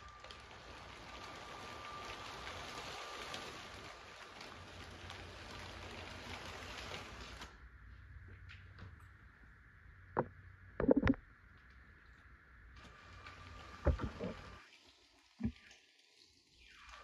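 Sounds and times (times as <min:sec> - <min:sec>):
toy train rattling on plastic track: 0:00.0 - 0:07.5.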